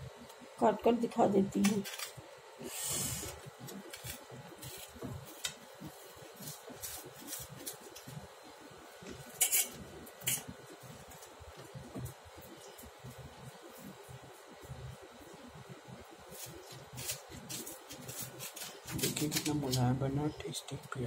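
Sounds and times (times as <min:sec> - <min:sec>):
scissors snipping pizza: 0:03.2 - 0:08.2, 0:16.3 - 0:20.0
scissors scraping steel plate: 0:09.3 - 0:10.5.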